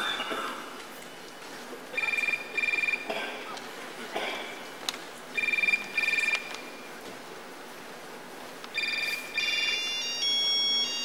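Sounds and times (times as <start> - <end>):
phone ringtone beeps: 2.0 - 3.0, 5.4 - 6.5, 8.8 - 11.0
phones holding steady tones: 8.5 - 11.0.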